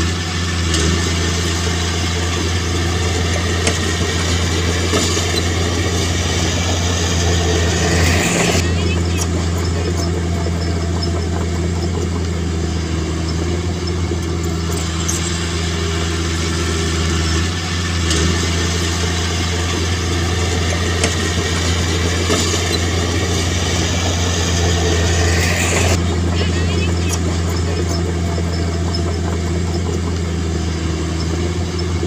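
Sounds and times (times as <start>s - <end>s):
diesel engine droning: 0.0s - 32.0s.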